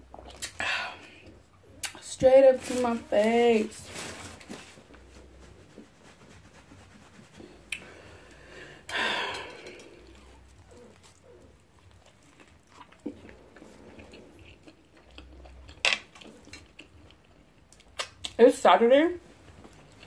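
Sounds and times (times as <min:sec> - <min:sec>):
wet chewing and mouth clicks: 0:00.1 - 0:00.6, 0:09.4 - 0:18.4.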